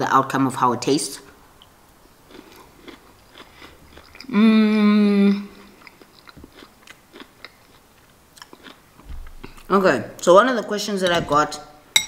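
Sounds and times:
person chewing: 0:01.3 - 0:09.7
closed-mouth humming mmm: 0:04.0 - 0:05.8.

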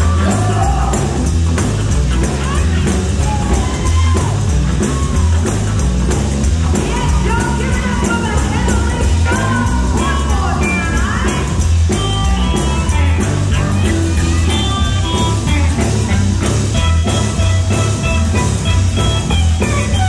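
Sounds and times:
gospel band playing loudly: 0:00.0 - 0:20.0
voices singing: 0:00.0 - 0:20.0.

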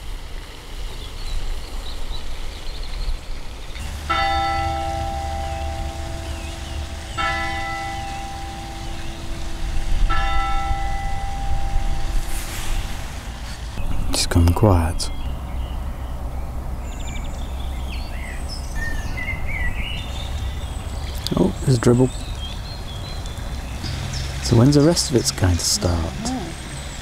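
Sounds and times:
large clock bell striking: 0:03.8 - 0:12.4.

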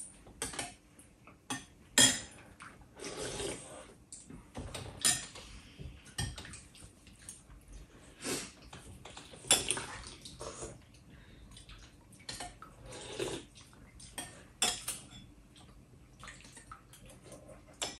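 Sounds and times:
spoons clinking against bowls: 0:14.1 - 0:15.3.

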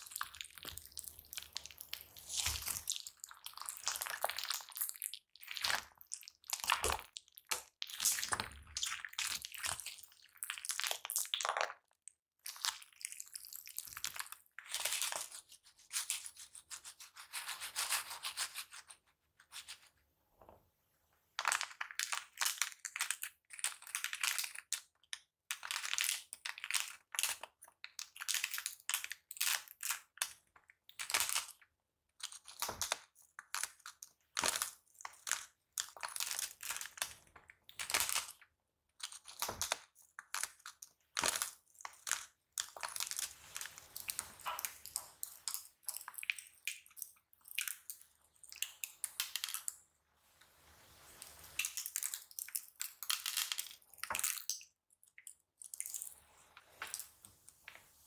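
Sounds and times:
slime crackling and popping: 0:00.0 - 0:11.8, 0:39.0 - 0:49.7.

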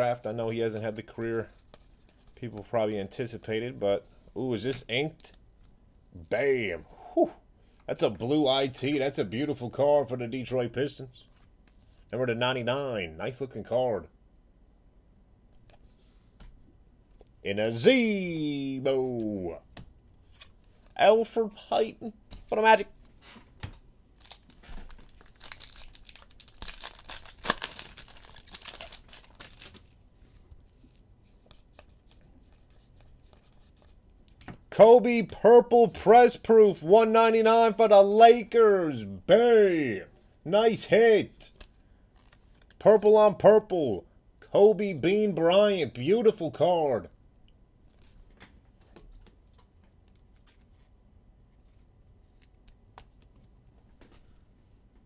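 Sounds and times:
cards ticking: 0:24.2 - 0:29.8
foil wrapper tearing and crinkling: 0:24.2 - 0:29.9.

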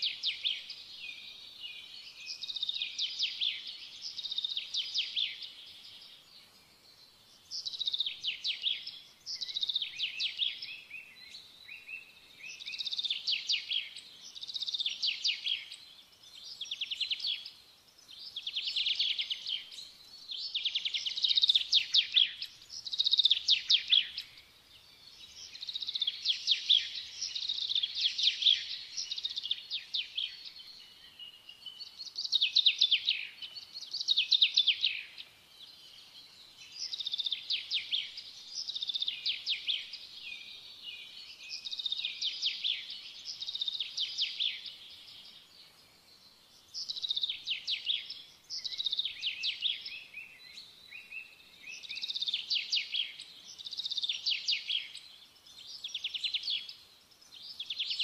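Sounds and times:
small bird chirping trills: 0:00.0 - 0:58.0.

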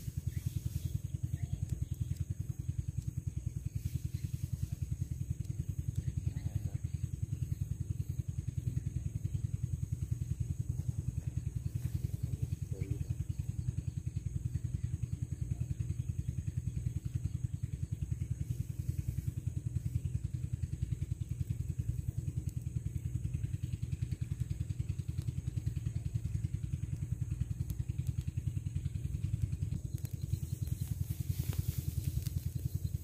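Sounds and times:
small engine running: 0:00.0 - 0:33.0.

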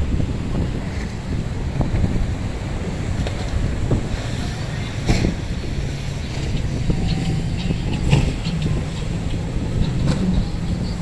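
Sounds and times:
boat engines running: 0:00.0 - 0:11.0
waves washing on rocks: 0:00.0 - 0:11.0.

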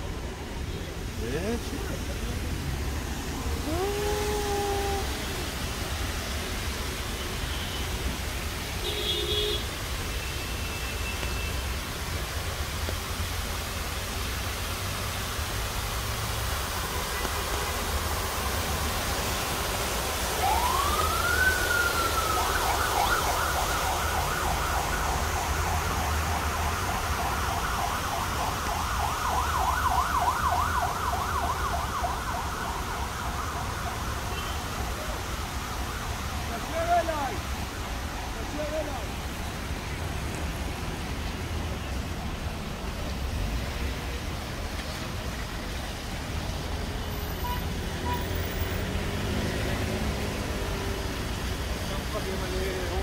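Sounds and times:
fountain water rushing: 0:00.0 - 0:53.0
emergency vehicle siren: 0:03.3 - 0:05.6, 0:18.2 - 0:39.1.

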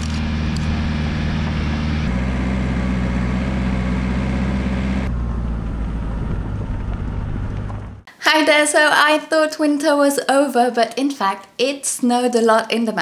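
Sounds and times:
diesel engine running: 0:00.0 - 0:08.1
tyre and road noise: 0:00.0 - 0:08.1.

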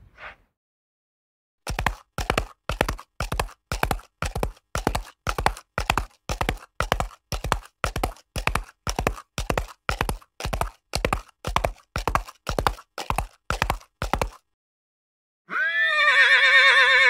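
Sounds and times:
horse hoofbeats: 0:01.7 - 0:14.4.

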